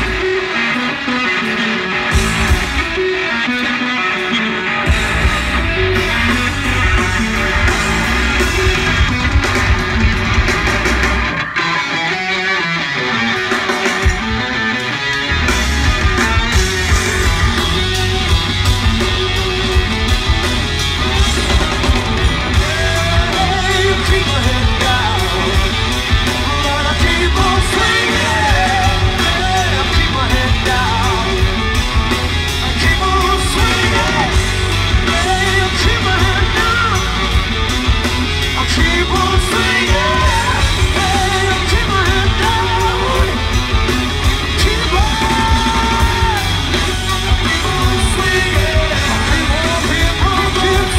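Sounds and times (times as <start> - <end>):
live rock band: 0.0 - 50.9
man singing: 22.3 - 31.9, 32.5 - 50.9.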